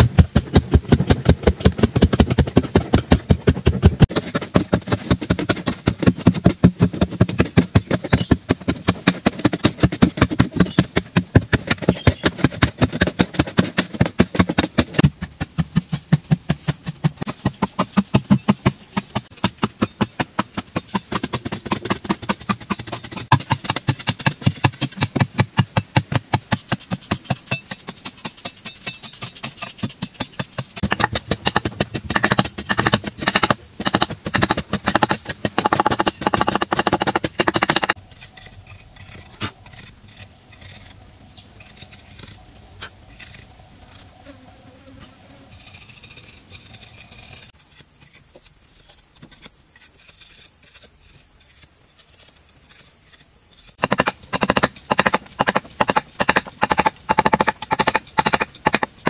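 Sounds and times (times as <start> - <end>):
metal blade scraping clay: 26.5 - 41.0, 41.6 - 44.1, 45.5 - 48.3.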